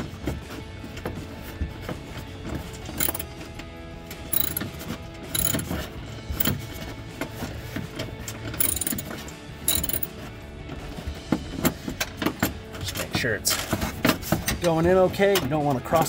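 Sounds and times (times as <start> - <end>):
background music: 0.0 - 16.0
ratchet wrench clicking: 3.0 - 3.2, 4.4 - 4.6, 5.4 - 5.7, 8.6 - 9.1, 9.7 - 10.1.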